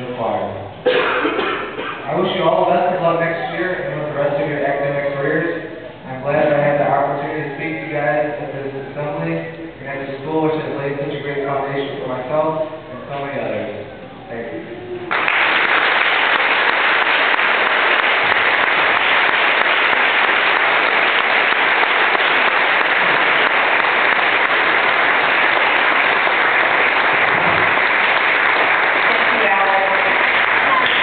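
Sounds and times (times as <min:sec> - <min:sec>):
audience applauding: 0:15.1 - 0:31.0.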